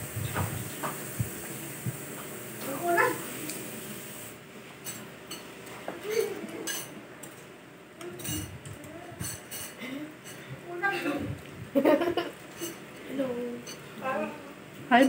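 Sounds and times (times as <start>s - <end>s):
spoons clinking against bowls: 4.8s - 5.5s, 6.6s - 7.4s, 8.2s - 8.5s, 9.2s - 10.4s, 13.6s - 13.9s.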